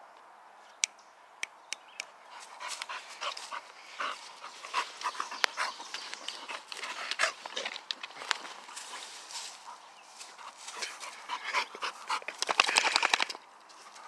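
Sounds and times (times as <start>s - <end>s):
rustling in dry leaves: 2.3s - 11.7s
dog panting: 2.3s - 13.0s.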